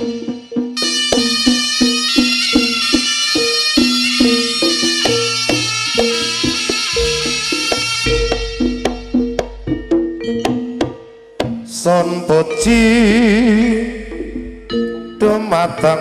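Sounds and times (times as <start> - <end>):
drum and gong-chime beat: 0.0 - 16.0
reedy shawm melody: 0.0 - 16.0.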